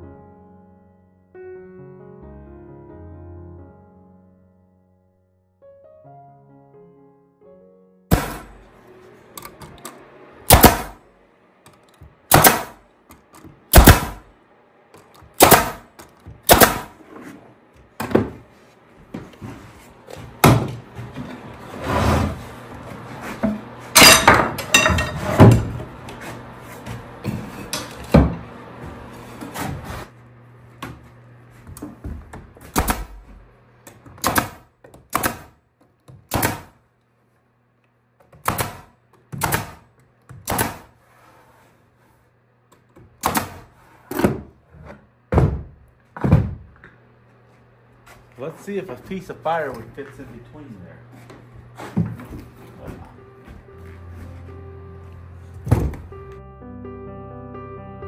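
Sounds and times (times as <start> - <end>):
steady low hum: 8.1 - 56.4
staple gun shots: 10.5 - 11.0, 12.3 - 12.8, 13.7 - 14.2, 15.4 - 17.0, 34.2 - 35.5, 36.3 - 36.8, 38.4 - 39.8.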